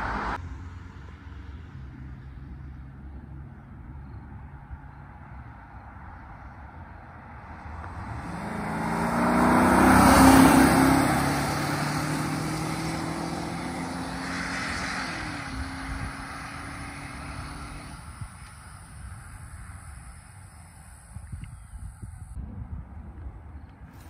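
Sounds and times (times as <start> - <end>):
car driving past: 0.0 - 2.6, 5.1 - 21.0.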